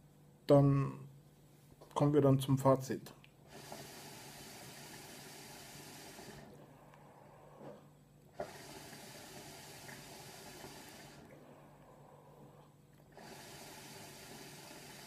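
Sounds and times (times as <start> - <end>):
hookah water bubbling: 3.4 - 7.1, 8.3 - 15.0.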